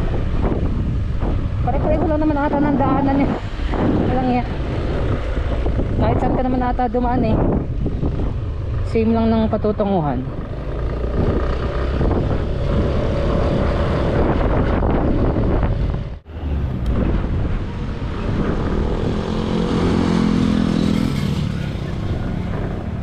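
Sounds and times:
wind and road noise: 0.0s - 23.0s
motorcycle engine running: 7.6s - 13.9s.

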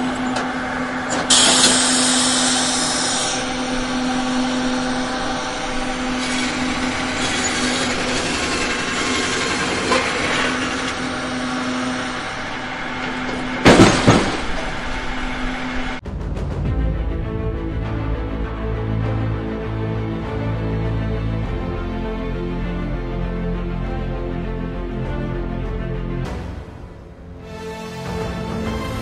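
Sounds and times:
sawmill machinery humming: 0.0s - 16.0s, 16.8s - 29.0s
music: 16.0s - 29.0s.

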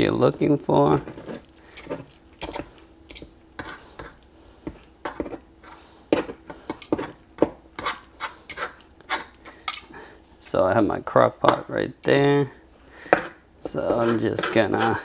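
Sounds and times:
forks scraping on plastic board: 7.8s - 9.3s, 13.1s - 15.0s.

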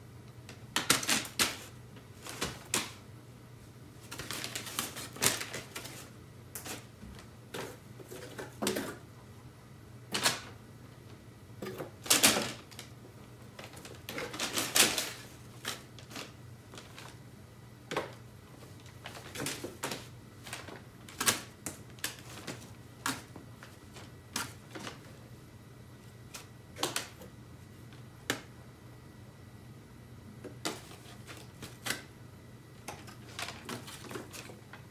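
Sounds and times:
paper crinkling in a cardboard box: 4.0s - 6.9s, 13.6s - 17.2s, 18.6s - 25.1s, 33.1s - 34.7s.

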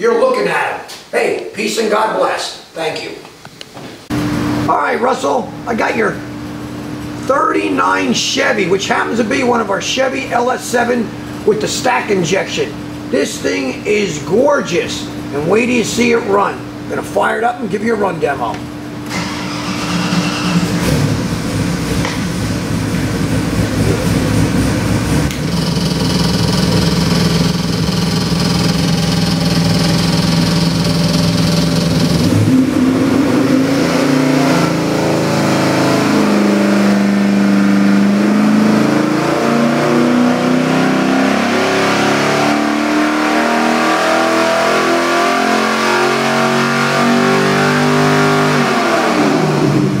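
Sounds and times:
engine revving on a dyno: 19.0s - 50.0s.

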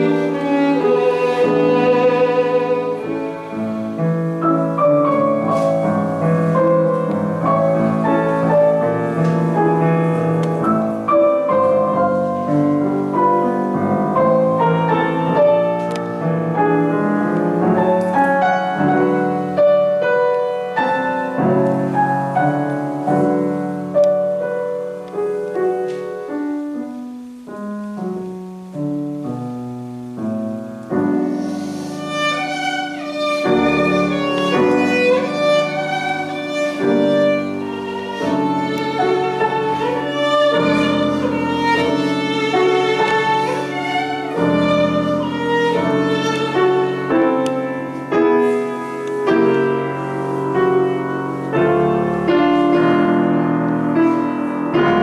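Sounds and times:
violin: 0.0s - 25.2s, 30.8s - 55.0s
grand piano: 0.0s - 55.0s.

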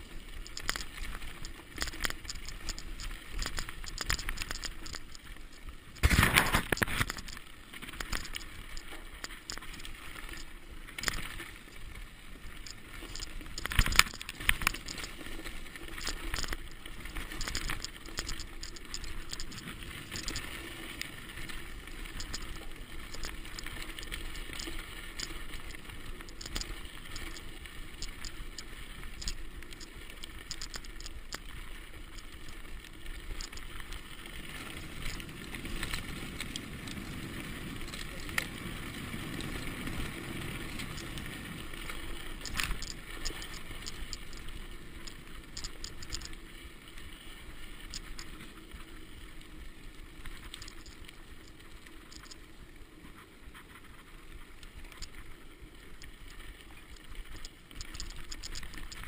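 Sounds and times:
bike clicks and rattles: 0.0s - 11.8s, 12.4s - 20.6s, 21.3s - 38.6s, 39.2s - 46.4s, 56.8s - 59.0s
bike tyres rushing on dirt: 31.7s - 45.6s.

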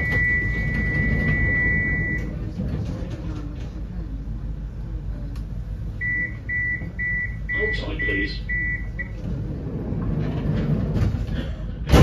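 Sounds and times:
door warning beeps: 0.0s - 2.4s, 6.0s - 9.3s
tram low hum: 0.0s - 12.0s.

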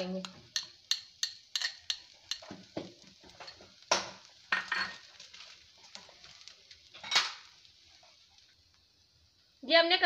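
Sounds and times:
spoon scraping metal pan: 0.5s - 2.6s.

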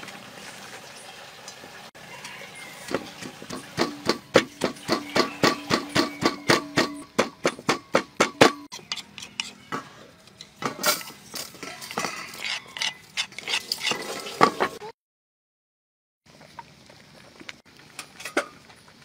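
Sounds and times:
clinks and scrapes in metal bowl: 2.2s - 14.9s
pestle pounding in a mortar: 2.9s - 8.9s.

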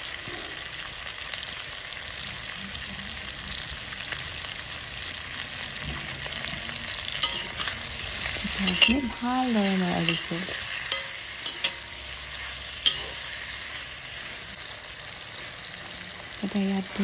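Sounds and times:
meat sizzling in a pan: 0.0s - 17.0s
metal spatula scraping a pan: 5.8s - 14.6s.

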